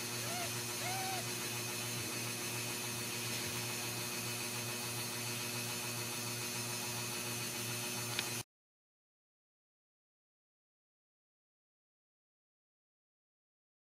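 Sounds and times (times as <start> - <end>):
whirring hiss: 0.0 - 4.9.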